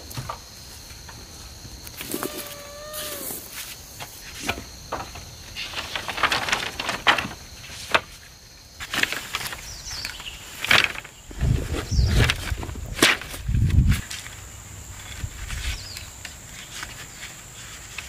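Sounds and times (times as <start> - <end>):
high insect buzz: 0.0 - 5.6
bamboo canes clattering: 0.0 - 18.0.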